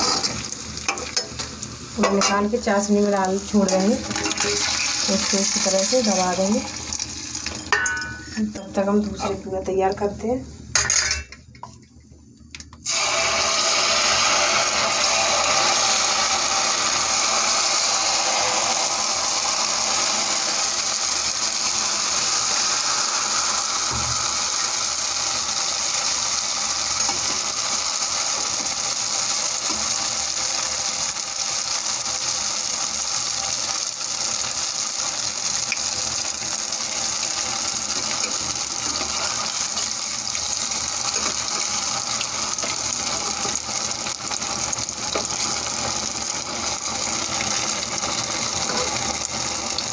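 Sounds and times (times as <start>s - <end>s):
batter deep-frying in hot oil: 0.0s - 10.2s, 12.8s - 49.9s.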